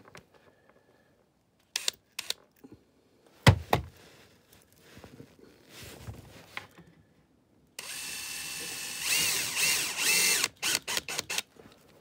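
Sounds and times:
power drill driving screw: 0:01.7 - 0:02.4, 0:07.8 - 0:11.5.

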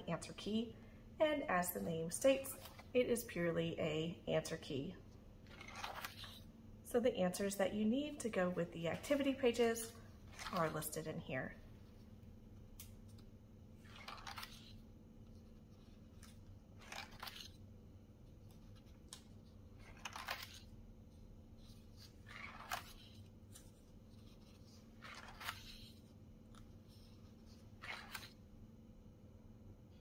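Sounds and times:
paper pages turning: 0:02.4 - 0:03.0, 0:05.4 - 0:06.5, 0:10.2 - 0:11.0, 0:12.8 - 0:28.5.

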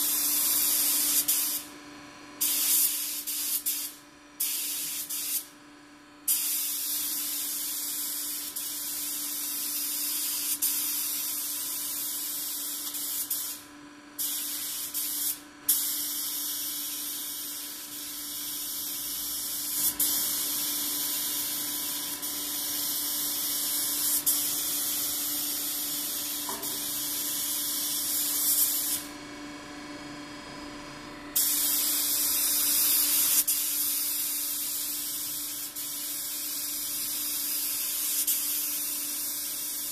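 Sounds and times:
spray gun hissing: 0:00.0 - 0:01.6, 0:02.4 - 0:05.5, 0:14.2 - 0:29.1, 0:31.4 - 0:39.9.

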